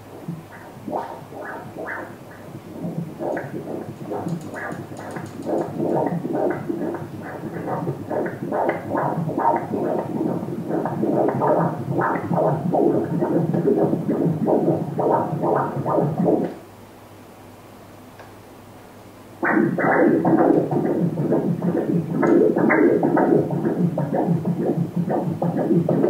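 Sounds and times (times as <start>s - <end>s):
ultrasound heartbeat swishing: 0.0s - 16.5s, 19.4s - 26.0s.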